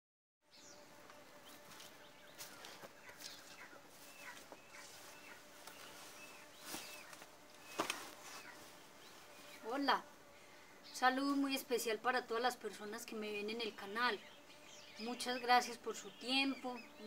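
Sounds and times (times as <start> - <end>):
birds chirping: 0.5 - 17.0
thin steady hum: 0.5 - 17.0
soft knocks and rustles: 1.7 - 8.6.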